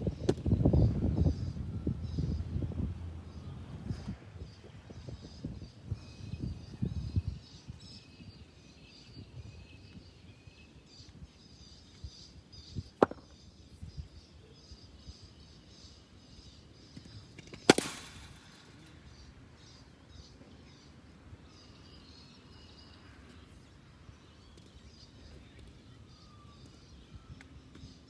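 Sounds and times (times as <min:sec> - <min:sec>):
faint bird chirps: 0:00.1 - 0:17.6, 0:18.5 - 0:28.0
cricket bat striking ball: 0:13.0 - 0:13.3, 0:17.4 - 0:18.4.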